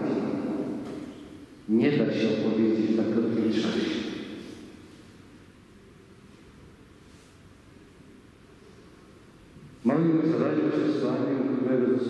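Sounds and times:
low room hum: 0.0 - 12.0
word echoing in church: 1.7 - 4.8.

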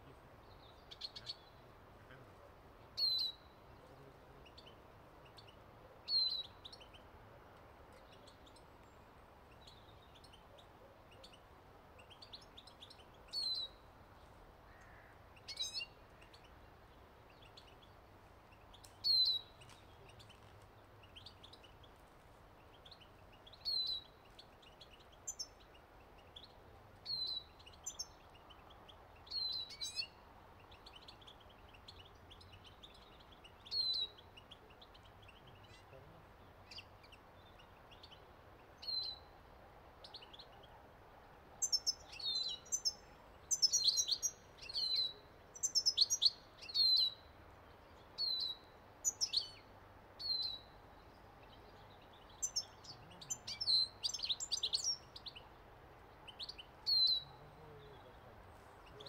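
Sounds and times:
faint bird twittering: 41.6 - 55.5, 56.2 - 59.0.

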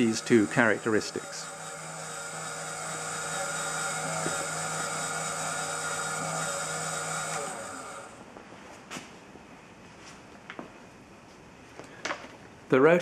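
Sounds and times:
model helicopter rotor whine: 0.0 - 8.2.

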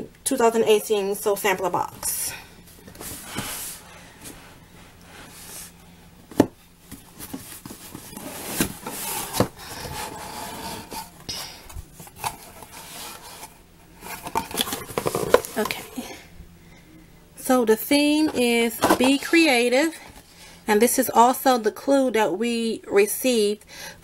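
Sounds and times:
cardboard rubbing and scraping: 6.9 - 11.2, 11.9 - 16.0.

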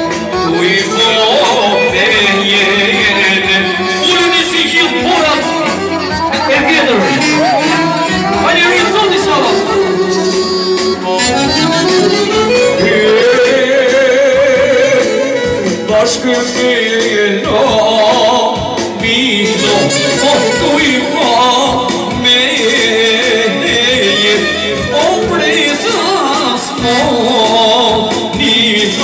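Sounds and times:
clarinet playing trilled phrases: 0.0 - 14.2, 19.4 - 21.6
man singing with vibrato: 0.0 - 29.0.

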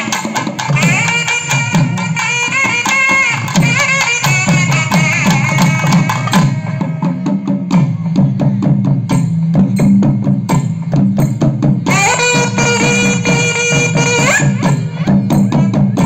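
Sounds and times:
reed wind instrument melody: 0.0 - 7.7, 11.9 - 16.0
barrel drums played with sticks: 0.0 - 16.0.

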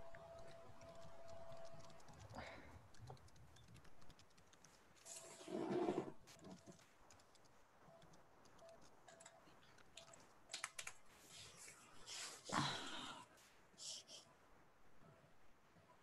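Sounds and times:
keyboard typing: 0.0 - 11.5.

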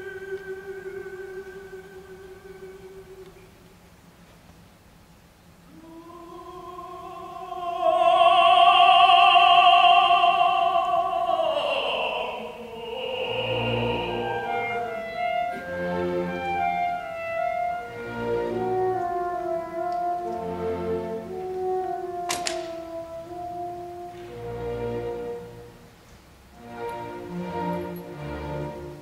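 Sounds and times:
tenor singing: 0.0 - 3.6, 5.6 - 25.7
chamber orchestra chords: 0.0 - 3.8, 5.6 - 29.0.

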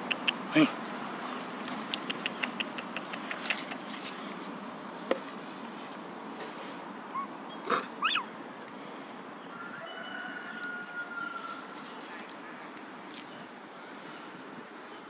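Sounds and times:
baby monkey high-pitched calls: 7.1 - 8.3.

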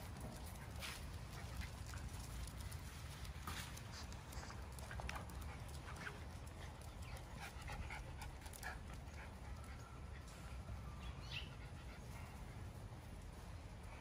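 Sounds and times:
paw clicks and scuffles: 0.0 - 10.0
puppies panting: 0.0 - 10.4, 11.3 - 13.0.

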